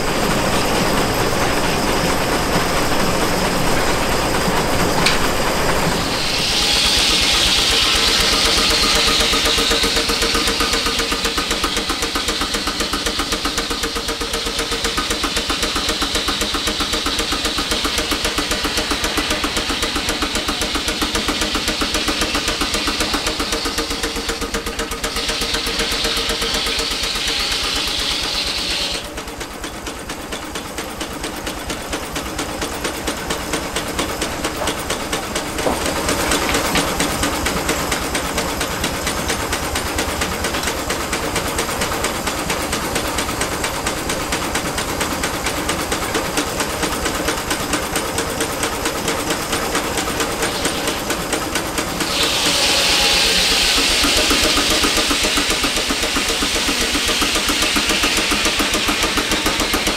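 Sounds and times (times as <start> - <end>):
sawmill engine rhythmic beat: 0.0 - 59.9
high hiss: 4.9 - 13.6, 49.4 - 59.9.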